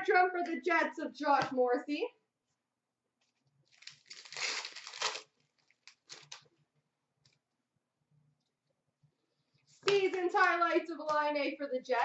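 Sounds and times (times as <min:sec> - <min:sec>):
cards rustling: 0:03.2 - 0:06.5
wrapper crinkling as torn open: 0:03.6 - 0:06.5.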